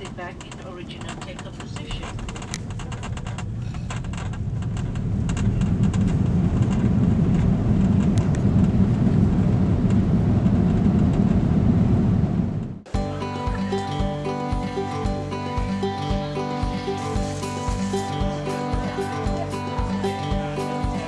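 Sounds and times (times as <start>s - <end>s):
airliner engines and wheels rumbling: 0.0s - 12.8s.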